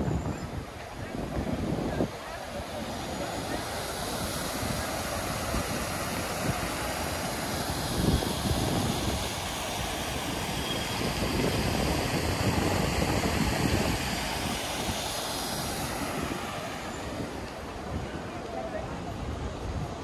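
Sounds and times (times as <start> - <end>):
city traffic roar: 0.0 - 20.0
fountain splashing: 0.0 - 20.0.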